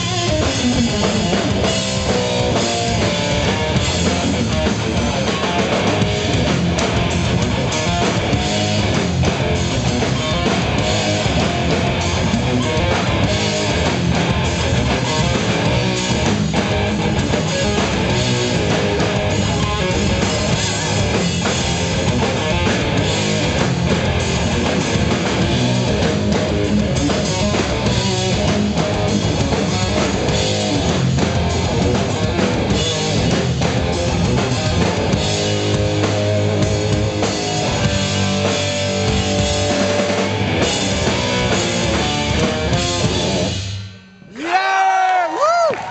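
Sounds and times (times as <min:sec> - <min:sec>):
electric bass: 0:00.0 - 0:44.4
distorted electric guitar: 0:00.0 - 0:44.9
drum kit: 0:00.0 - 0:45.9.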